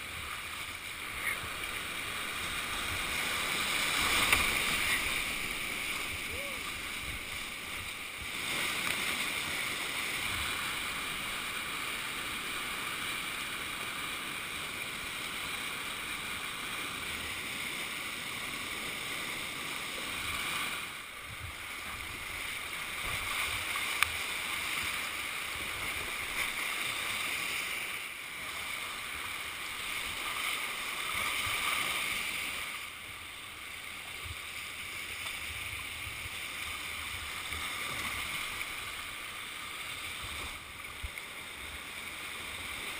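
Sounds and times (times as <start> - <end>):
river rapids rushing: 0.0 - 32.9.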